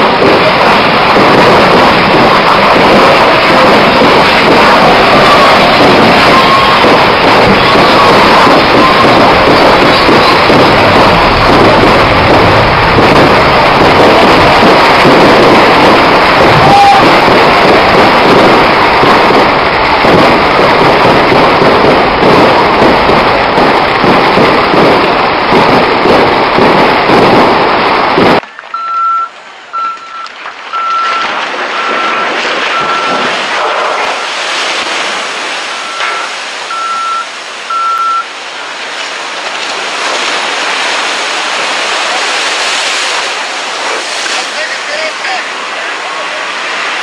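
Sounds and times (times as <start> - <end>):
steady rushing noise: 0.0 - 28.7, 29.3 - 47.0
firecrackers crackling: 0.0 - 47.0
electronic warning beeps: 6.2 - 6.9, 7.6 - 10.7, 28.7 - 33.3, 35.7 - 38.3.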